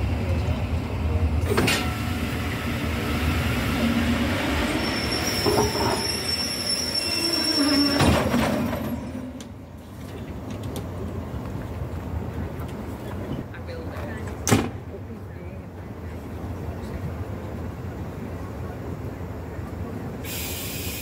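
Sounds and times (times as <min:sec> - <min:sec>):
train wheels rumbling and clattering: 0:00.0 - 0:14.9
high-pitched wheel squeal: 0:04.2 - 0:09.3.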